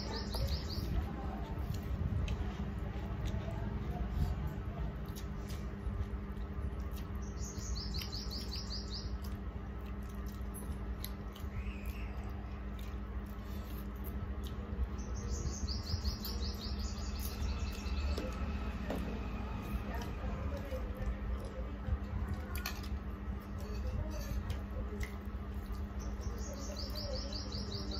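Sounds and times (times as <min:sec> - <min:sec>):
bird chirping: 0:00.0 - 0:01.0, 0:07.2 - 0:09.4, 0:14.9 - 0:18.4, 0:25.9 - 0:27.9
low hum: 0:00.0 - 0:27.9.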